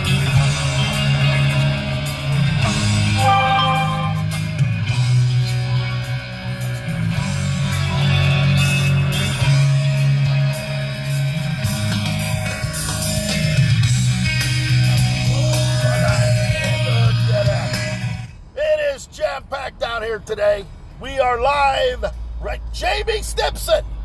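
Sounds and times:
rock music with guitar and bass: 0:00.0 - 0:18.5.

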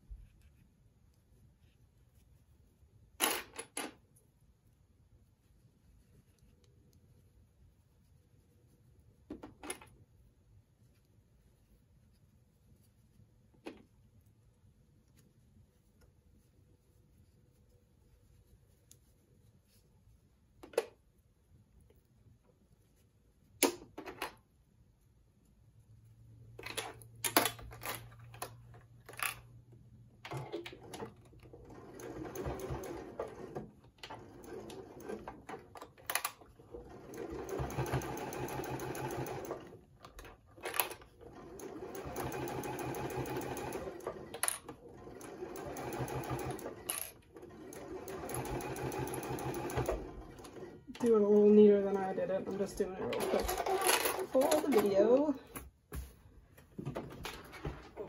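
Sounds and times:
sewing machine stitching: 0:30.3 - 0:39.8, 0:40.6 - 0:51.2, 0:52.5 - 0:55.0.

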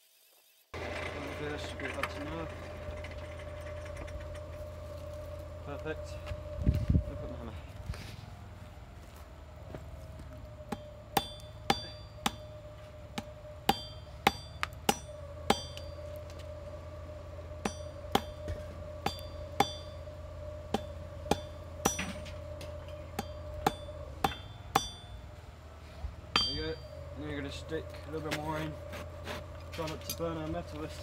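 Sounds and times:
faint steady hum: 0:00.7 - 0:31.0
hammer striking steel on anvil: 0:10.7 - 0:16.1, 0:17.6 - 0:20.1, 0:20.7 - 0:25.2, 0:26.3 - 0:26.9.

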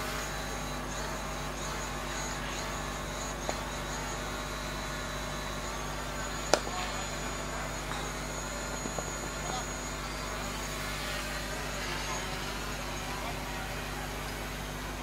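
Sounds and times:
insects droning: 0:00.0 - 0:15.0
cricket bat striking ball: 0:06.5 - 0:06.9.

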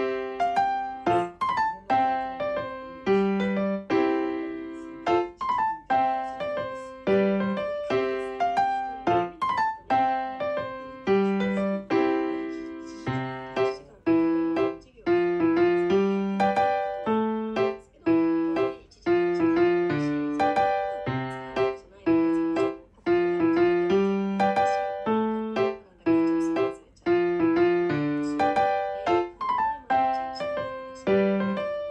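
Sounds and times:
piano music: 0:00.0 - 0:31.9.

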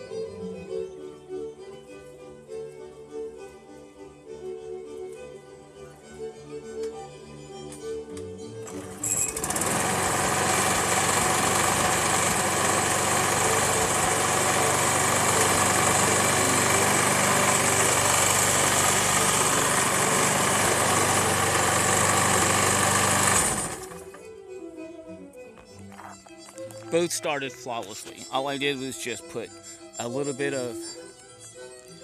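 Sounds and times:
lawn mower engine running: 0:08.6 - 0:24.2.

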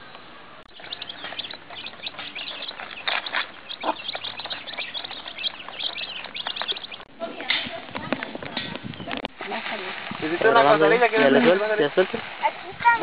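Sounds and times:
chicks peeping: 0:00.0 - 0:12.2.

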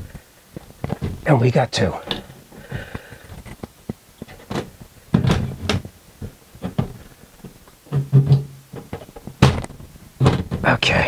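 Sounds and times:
plastic cover clicks and knocks: 0:03.5 - 0:10.6
loud thumps: 0:04.4 - 0:10.9.

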